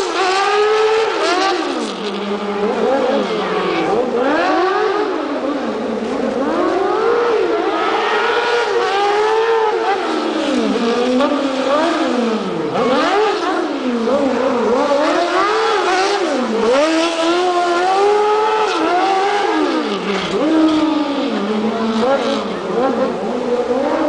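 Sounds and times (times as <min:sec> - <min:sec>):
car engine revving hard: 0:00.0 - 0:24.0.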